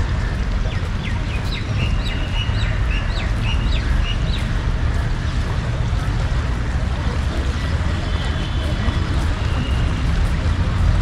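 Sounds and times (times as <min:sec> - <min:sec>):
birds chirping: 0:00.0 - 0:06.7.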